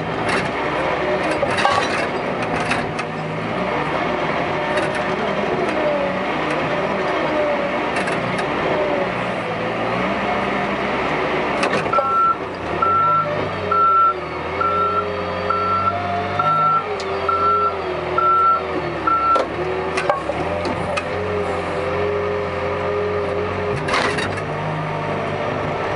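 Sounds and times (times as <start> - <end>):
diesel engine running: 0.0 - 25.9
metallic clunk: 1.3 - 3.1
reversing alarm beeping: 11.9 - 19.5.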